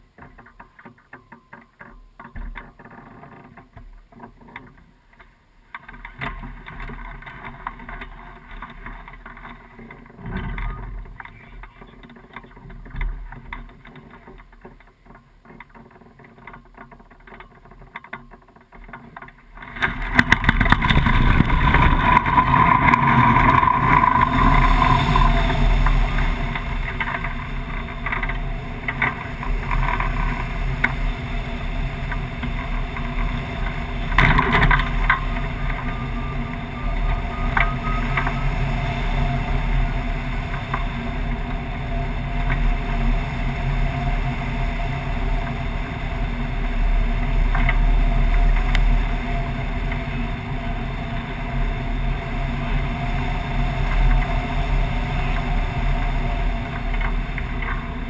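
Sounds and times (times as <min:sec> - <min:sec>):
air rushing and buffeting: 0:19.7 - 0:58.0
steady drone: 0:19.9 - 0:58.0.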